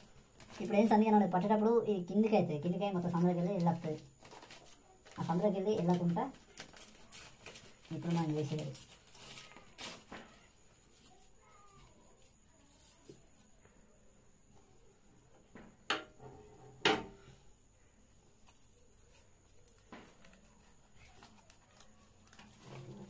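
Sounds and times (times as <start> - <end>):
paper handling noise: 0.0 - 1.0, 3.1 - 13.5, 18.4 - 23.0.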